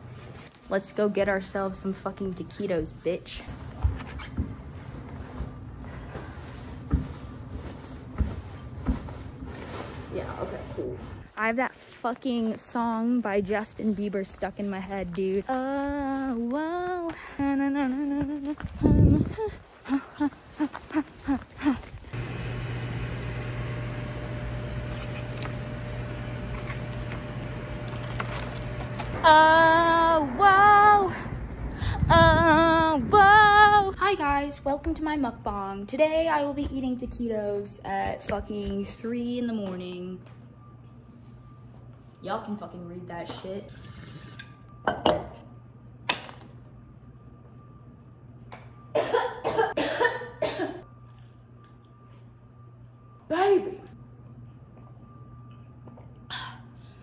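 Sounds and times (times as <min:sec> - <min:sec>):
woman singing: 0:14.8 - 0:21.8, 0:29.2 - 0:31.3, 0:31.9 - 0:39.8
woman coughing: 0:49.0 - 0:50.8.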